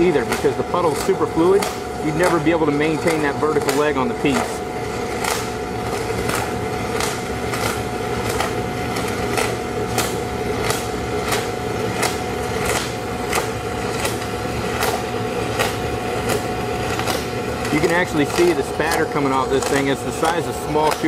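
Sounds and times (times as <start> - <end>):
steady hum: 0.0 - 21.0
welding arc crackle and hiss: 5.3 - 21.0.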